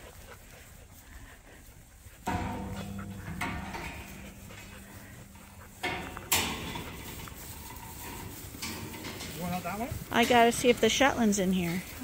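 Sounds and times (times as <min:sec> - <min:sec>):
lambs milling on straw: 0:00.0 - 0:12.0
sharp metallic clank: 0:02.3 - 0:09.6.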